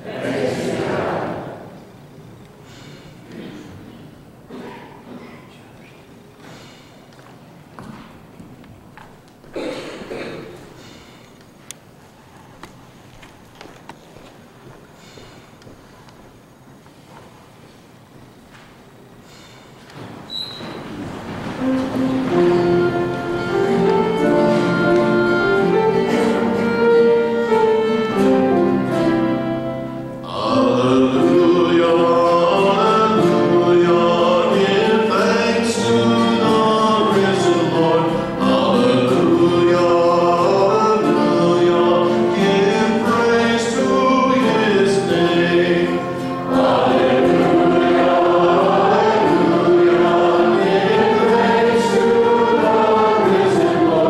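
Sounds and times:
voices singing church music: 0:00.0 - 0:02.0, 0:21.6 - 0:54.0
instrumental accompaniment held notes: 0:21.6 - 0:54.0.

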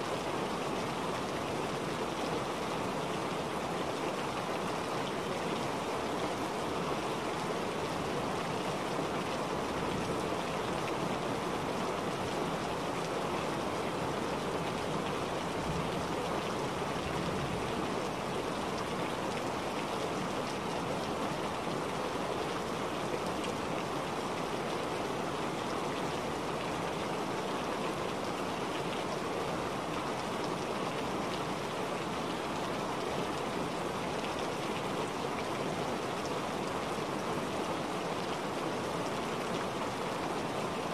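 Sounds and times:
rushing water: 0:00.0 - 0:40.9.

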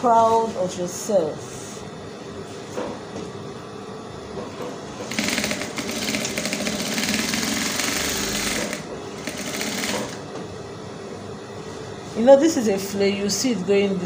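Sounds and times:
sewing machine rattling: 0:05.0 - 0:10.2.

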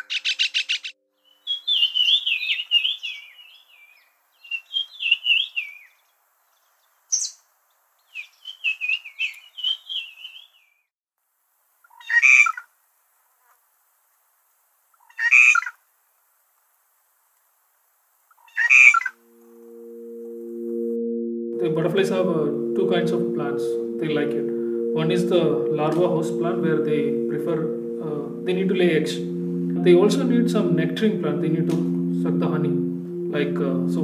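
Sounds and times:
birds warbling: 0:00.0 - 0:05.9, 0:08.1 - 0:10.6
harsh bird calls: 0:00.0 - 0:06.0, 0:08.1 - 0:10.8, 0:18.3 - 0:19.2.

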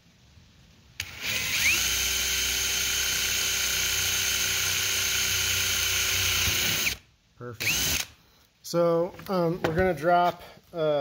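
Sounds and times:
cordless drill boring through metal: 0:01.0 - 0:07.0, 0:07.6 - 0:08.1.

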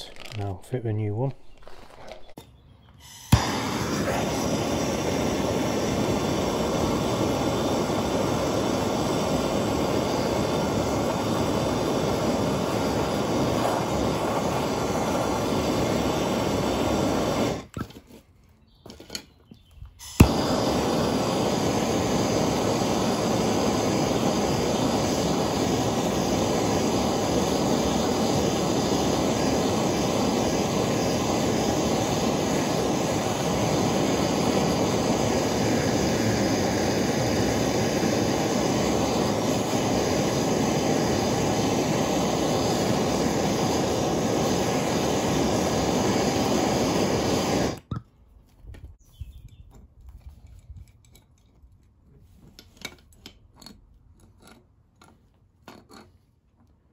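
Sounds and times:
gas blowtorch rushing: 0:01.4 - 0:18.0, 0:20.0 - 0:48.0.

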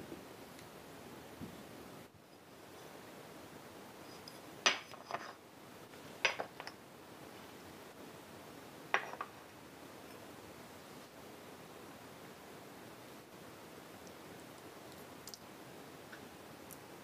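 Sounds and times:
low room hiss: 0:00.0 - 0:17.0
ceramic dishes clinking: 0:06.3 - 0:06.8, 0:08.9 - 0:09.4.

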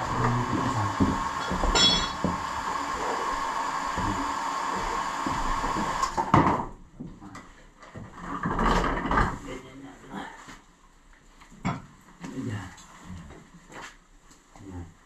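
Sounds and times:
steady mechanical hum: 0:00.0 - 0:08.1.

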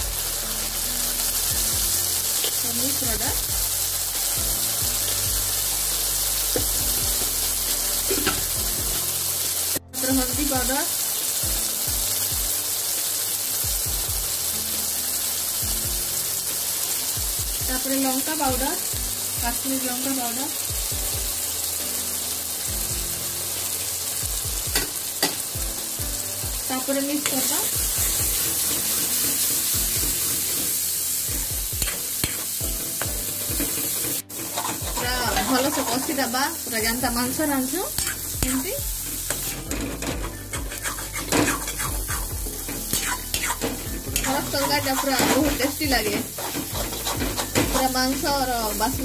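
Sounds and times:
spices sizzling in oil: 0:00.0 - 0:49.0
metal spoon scraping pan: 0:34.1 - 0:36.2, 0:40.2 - 0:42.2
deep thumping music beat: 0:40.2 - 0:48.3.

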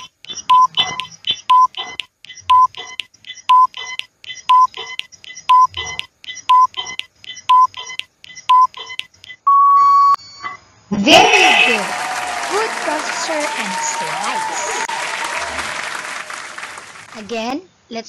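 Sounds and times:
timer ticking: 0:00.0 - 0:10.2.

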